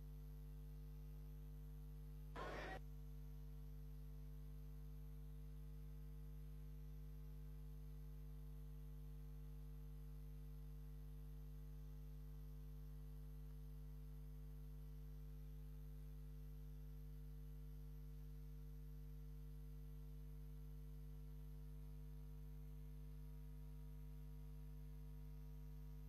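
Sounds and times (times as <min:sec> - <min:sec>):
faint electrical hum: 0:00.0 - 0:26.0.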